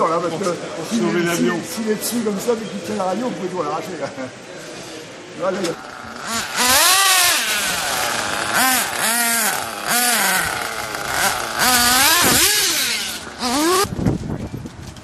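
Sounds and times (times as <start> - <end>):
small nitro engines revving: 5.7 - 13.9.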